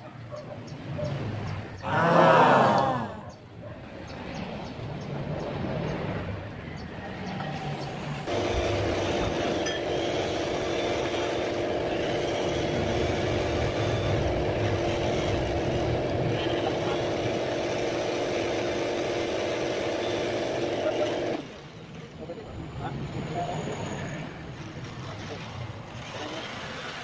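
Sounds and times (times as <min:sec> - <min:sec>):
steady machine drone: 0:08.2 - 0:21.6.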